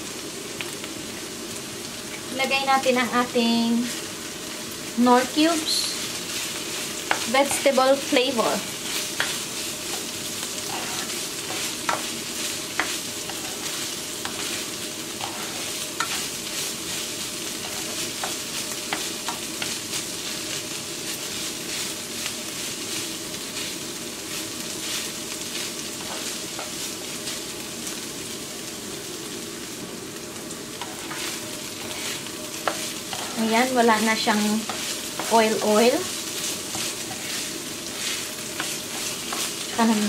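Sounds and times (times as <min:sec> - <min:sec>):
meat sizzling in a frying pan: 0:00.0 - 0:40.0
spatula scraping a pan: 0:05.8 - 0:20.4, 0:24.8 - 0:26.9, 0:30.8 - 0:40.0.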